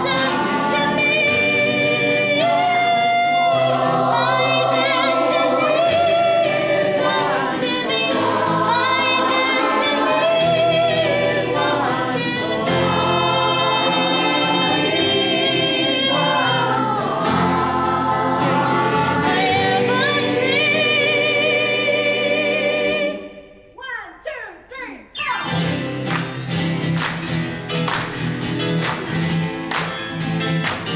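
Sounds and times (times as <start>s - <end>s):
choir singing in harmony: 0.0s - 23.7s.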